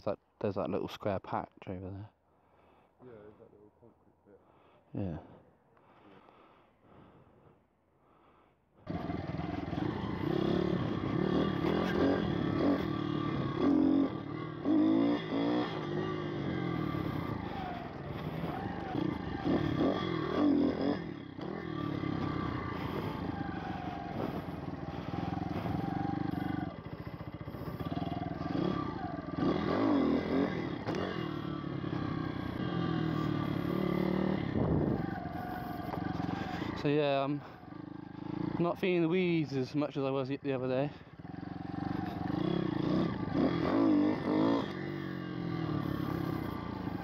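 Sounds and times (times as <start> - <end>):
pit bike engine revving: 8.8 - 39.0, 40.9 - 47.0.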